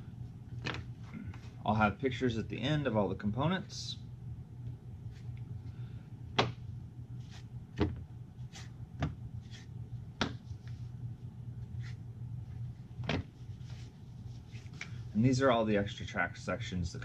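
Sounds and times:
faint handling sounds: 0:11.6 - 0:15.6.

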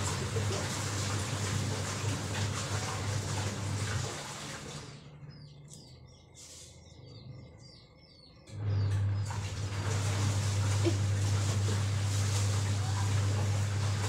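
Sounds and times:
small birds chirping: 0:04.8 - 0:11.0
low hum: 0:04.8 - 0:14.0
leaves rustling in plastic basket: 0:09.8 - 0:14.0.

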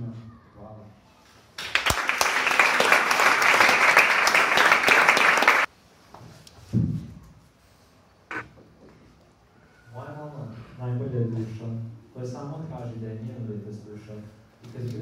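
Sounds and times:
audience clapping: 0:01.6 - 0:05.7.

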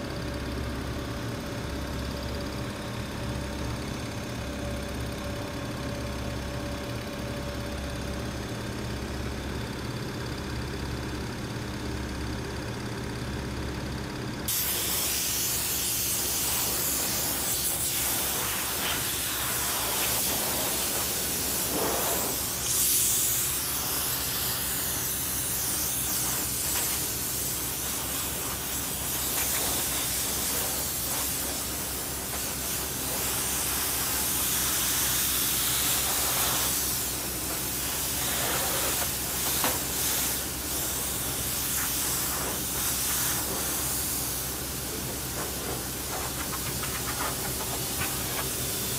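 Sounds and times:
pressure washer spraying water: 0:14.5 - 0:48.9.

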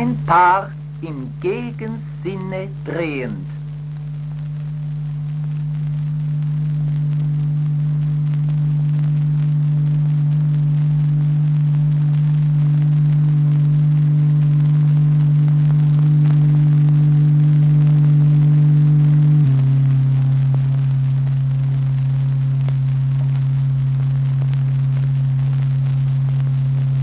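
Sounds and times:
low electronic tone: 0:13.6 - 0:21.9.

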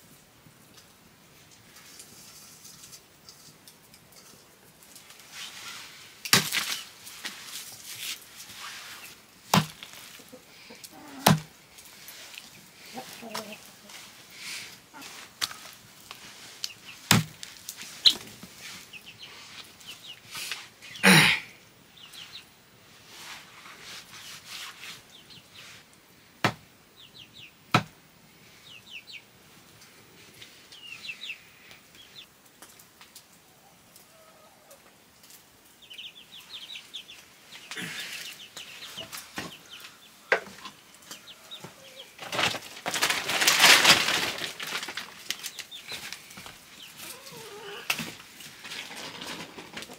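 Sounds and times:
plastic sack rustling: 0:05.0 - 0:10.3, 0:42.0 - 0:47.4, 0:48.0 - 0:49.9
chickens clucking: 0:08.6 - 0:17.1, 0:17.7 - 0:21.3, 0:33.4 - 0:35.0, 0:35.7 - 0:49.9.

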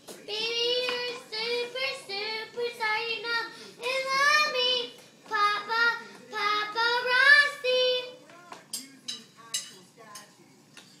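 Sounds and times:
girls singing unaccompanied: 0:00.3 - 0:08.2.

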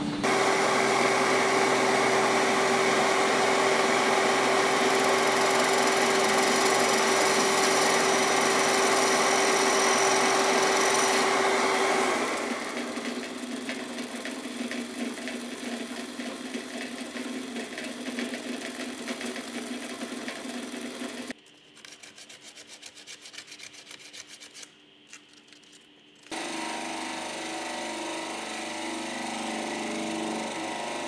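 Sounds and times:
drill press boring wood: 0:00.0 - 0:21.4, 0:26.3 - 0:31.0
woodworking machine motor hum: 0:00.0 - 0:21.4, 0:26.2 - 0:31.0
sandpaper on wood: 0:21.8 - 0:24.7.

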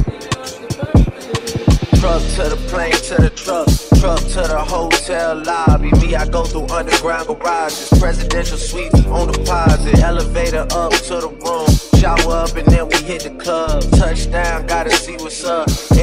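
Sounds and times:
rapping over a beat: 0:00.0 - 0:16.0
deep sliding bass hits: 0:02.0 - 0:06.9, 0:08.0 - 0:11.0.

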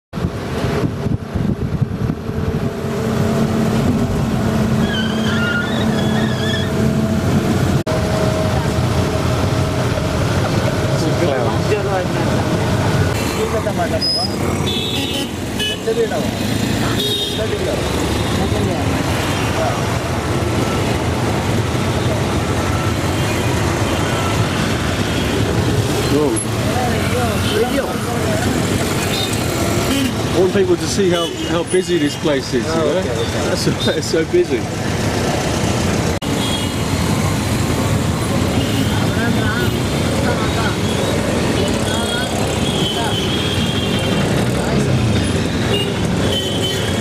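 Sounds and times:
road and wind noise: 0:00.1 - 0:47.0
traffic din: 0:00.1 - 0:47.0
bus engine running: 0:00.2 - 0:14.7.

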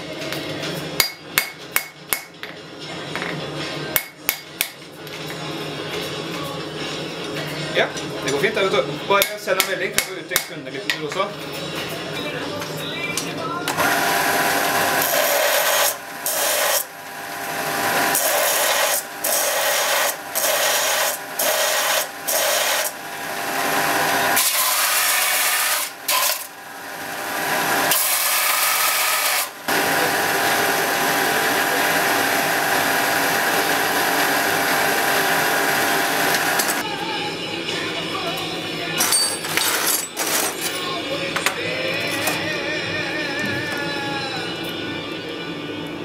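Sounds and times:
belt sander grinding steel: 0:13.7 - 0:36.8.

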